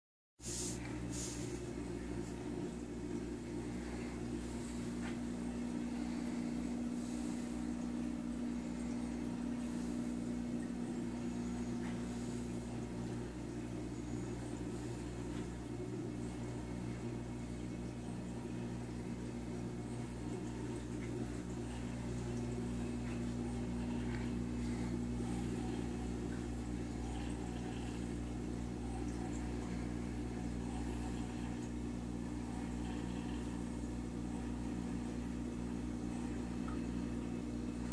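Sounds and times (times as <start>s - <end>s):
aquarium pumps humming: 0.4s - 37.9s.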